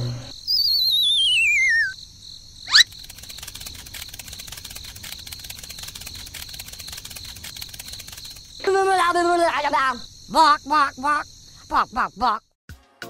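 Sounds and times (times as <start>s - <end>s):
crickets chirping: 0.0s - 12.6s
wavering falling whistle: 0.2s - 2.0s, 2.7s - 2.9s.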